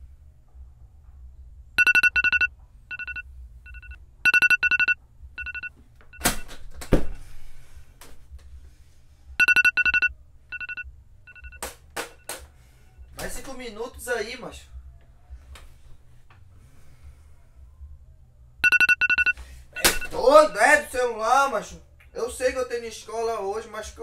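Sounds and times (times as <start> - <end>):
phone alarm beeping: 1.8 - 7.2, 9.4 - 11.6, 18.6 - 20.2.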